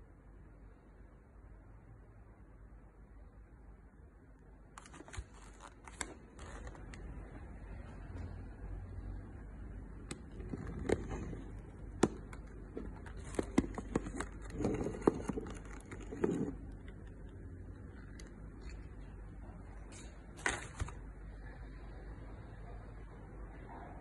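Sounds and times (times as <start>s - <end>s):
gel beads rustling: 10.2s - 19.1s.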